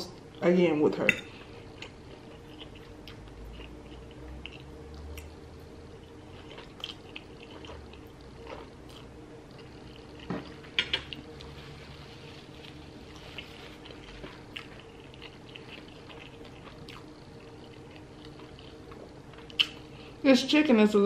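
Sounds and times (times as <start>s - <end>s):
faint steady hum: 0.0s - 21.0s
chewing: 1.7s - 5.4s, 6.0s - 11.6s, 12.2s - 20.0s
lip smacks: 19.5s - 19.8s.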